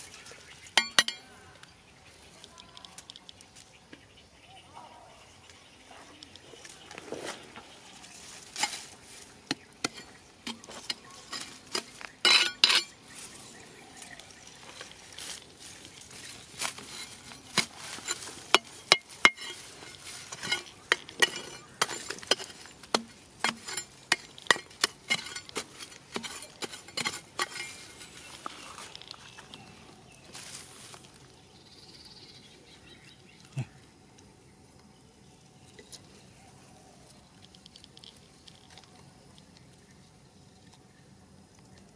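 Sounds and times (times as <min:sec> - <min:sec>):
hands rummaging through grass and stones: 0:06.6 - 0:31.4.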